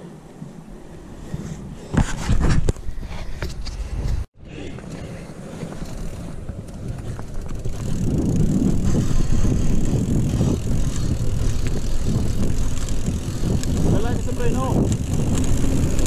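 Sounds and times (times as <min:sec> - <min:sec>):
tyres on dirt and gravel: 0:01.9 - 0:16.0
bike rattling over bumps: 0:05.5 - 0:16.0.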